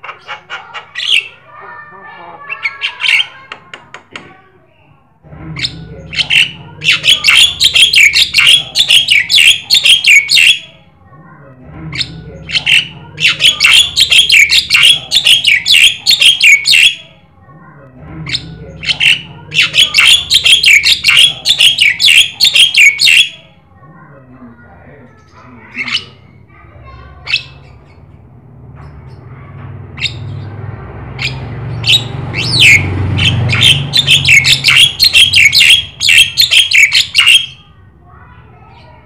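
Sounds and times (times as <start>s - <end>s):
bird chattering song: 0.0s - 1.5s, 2.4s - 3.6s, 5.6s - 10.8s, 11.9s - 17.1s, 18.2s - 23.6s, 25.1s - 26.3s, 27.2s - 28.2s, 30.0s - 30.6s, 31.2s - 37.7s.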